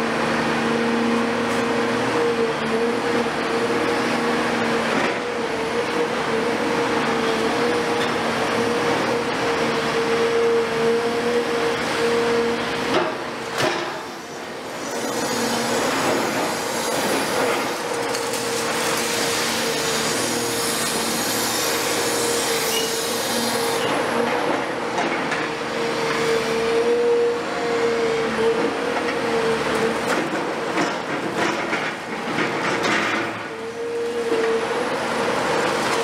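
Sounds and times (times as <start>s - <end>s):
excavator engine and hydraulics: 0.0s - 36.0s
concrete grinding and scraping: 14.6s - 24.3s.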